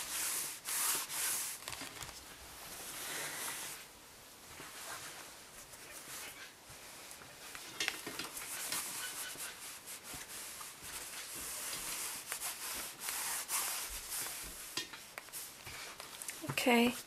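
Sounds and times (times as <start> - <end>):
iron rubbing swish on fabric: 0.0 - 1.6, 8.3 - 15.9
fabric rustling: 0.0 - 17.0.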